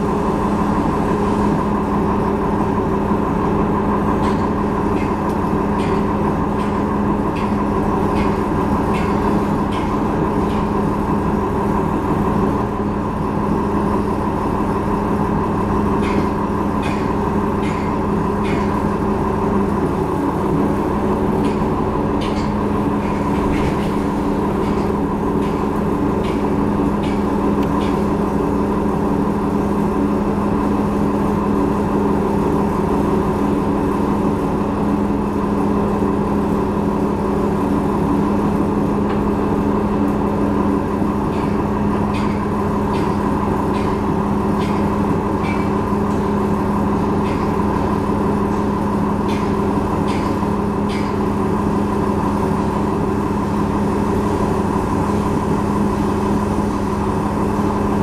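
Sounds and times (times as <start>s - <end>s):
bus engine hum: 0.0s - 58.0s.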